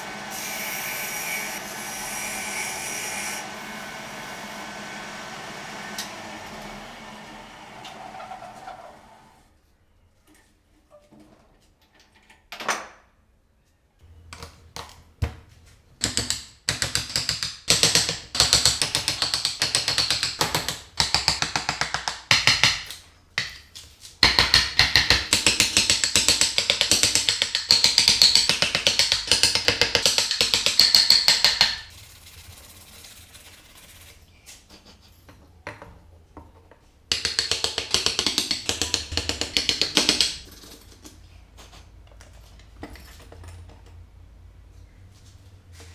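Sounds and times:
chisel carving wood: 37.1 - 40.5.

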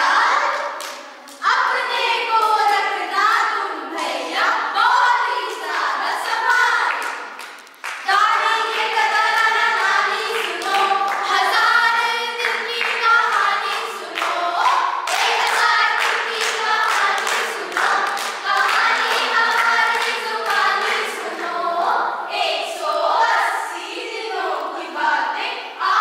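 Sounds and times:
young voices singing together: 0.0 - 26.0
hands clapping in rhythm: 0.3 - 4.5, 5.4 - 22.0.

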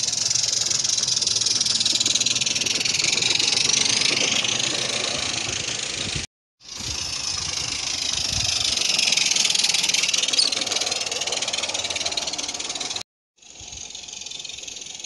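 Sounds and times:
steam locomotive exhaust hissing: 0.0 - 15.0
brief squeak: 10.2 - 10.8.

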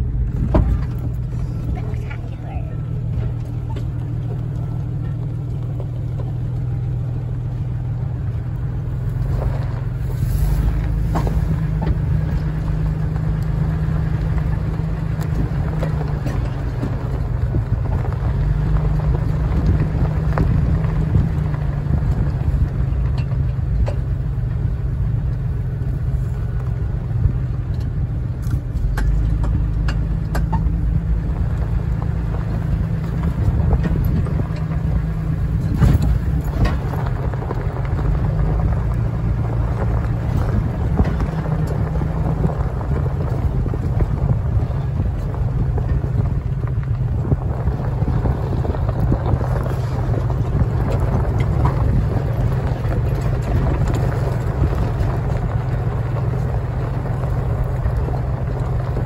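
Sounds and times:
engine and tyre rumble: 0.0 - 59.0.

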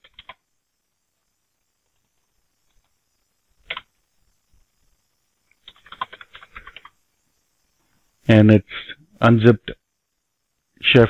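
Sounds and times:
keyboard typing: 0.0 - 0.4, 1.8 - 3.0, 3.6 - 4.0, 5.5 - 7.0.

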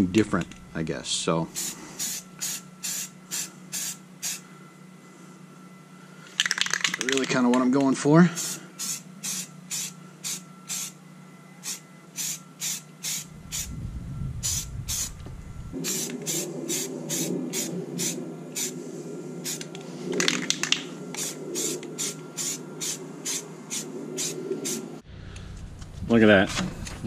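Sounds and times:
spray paint can hissing bursts: 1.6 - 4.4, 8.4 - 11.0, 11.6 - 13.7, 15.8 - 18.8, 19.4 - 24.8.

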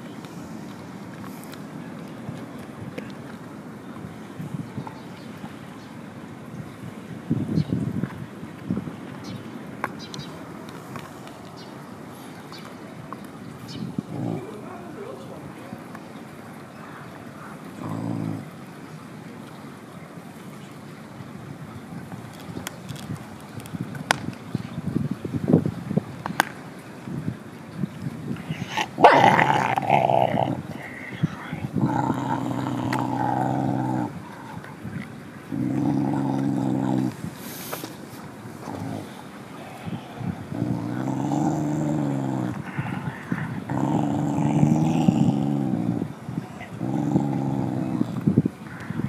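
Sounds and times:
dog growling: 14.0 - 15.2, 17.7 - 18.6, 28.4 - 37.6, 38.5 - 48.3.

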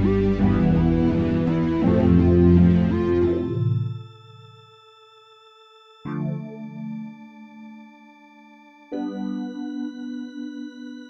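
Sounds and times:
held synthesizer tone: 0.0 - 4.7.

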